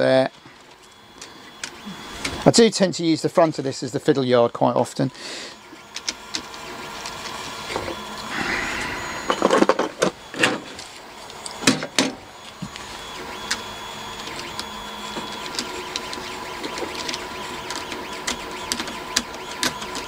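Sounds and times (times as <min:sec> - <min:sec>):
three d printer whirring hum: 0:00.0 - 0:20.0
thin high tone: 0:08.1 - 0:10.8.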